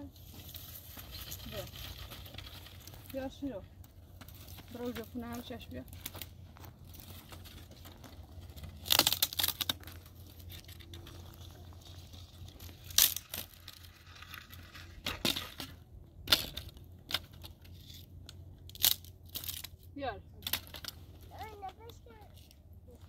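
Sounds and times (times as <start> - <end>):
dry sticks cracking and rustling: 0.2 - 23.0
sticks snapping: 8.8 - 11.0.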